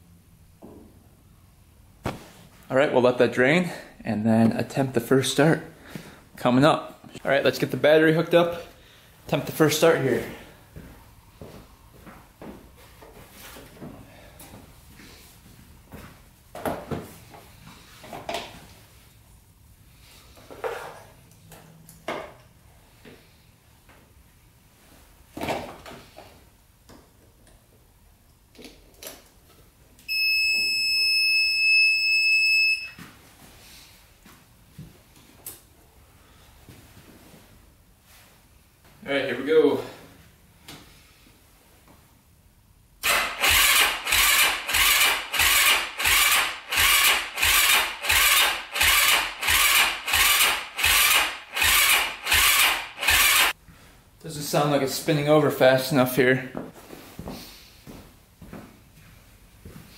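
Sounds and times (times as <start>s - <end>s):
high-pitched electronic beep: 30.1s - 33.0s
electric starter cranking engine: 43.0s - 53.5s.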